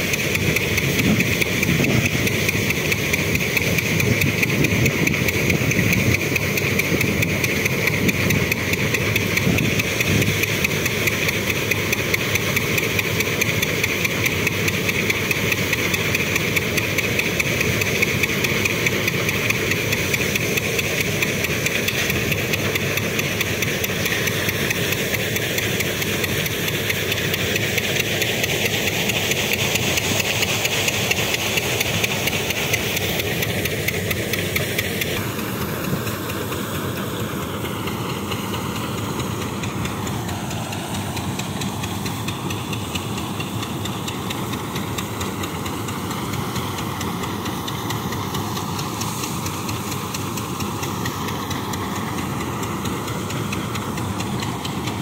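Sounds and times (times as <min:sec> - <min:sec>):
thresher hissing: 0:00.0 - 0:55.0
tractor engine drone: 0:00.0 - 0:55.0.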